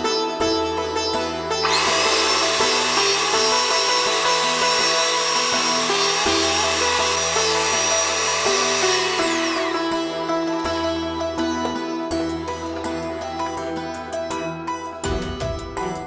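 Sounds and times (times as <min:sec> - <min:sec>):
electric hand mixer whining: 0:01.6 - 0:10.3.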